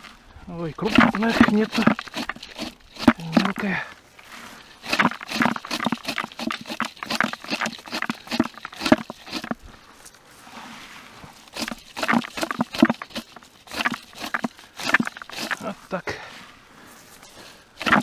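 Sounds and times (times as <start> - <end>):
berries pattering into bucket: 0.8 - 3.7, 4.8 - 9.6, 11.5 - 15.8
scoop raking through vines: 0.8 - 18.0.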